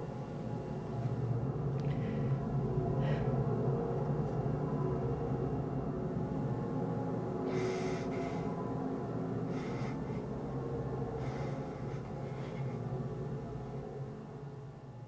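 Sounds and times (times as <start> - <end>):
steady low drone: 0.0 - 15.0
man breathing heavily through nose: 1.8 - 3.5, 7.4 - 13.8.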